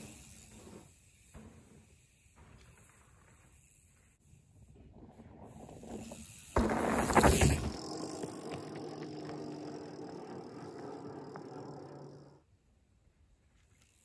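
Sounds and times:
tyre noise on dirt: 0.0 - 11.6
mountain bike passing on dirt: 0.0 - 14.0
light bike clicks: 13.6 - 14.0.

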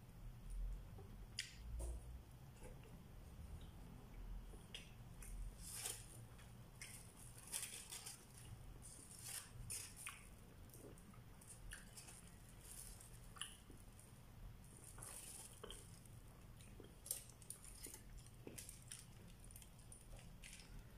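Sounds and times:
plastic bag and foil crinkling: 5.5 - 20.9
chewing: 9.7 - 14.1, 14.7 - 20.9.

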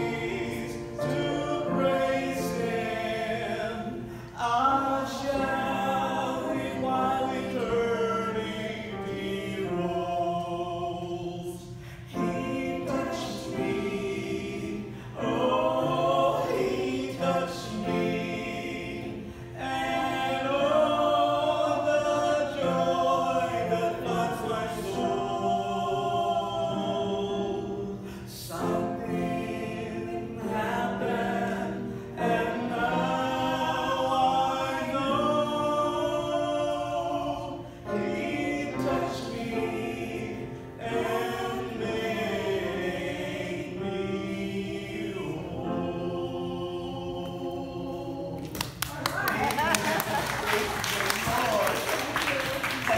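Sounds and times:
man and woman singing gospel duet: 0.0 - 52.9.

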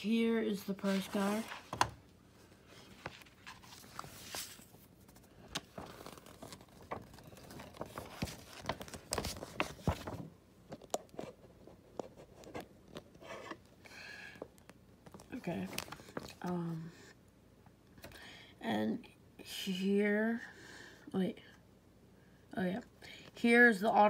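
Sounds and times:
paper pages rustling: 0.6 - 1.9, 2.6 - 13.6, 15.0 - 16.5.

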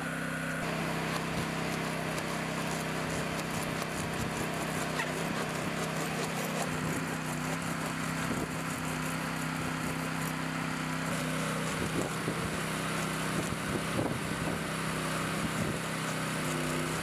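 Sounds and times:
hand saw rasping through glass: 1.0 - 17.0.

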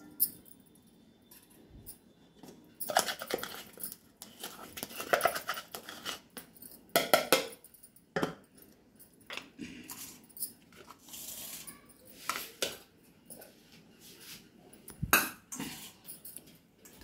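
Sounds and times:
utensils clinking on metal bowl: 2.7 - 13.5.

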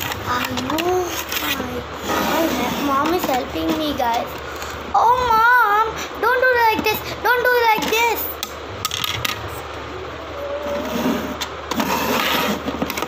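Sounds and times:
rustling scrape: 1.1 - 3.1, 10.6 - 12.9.

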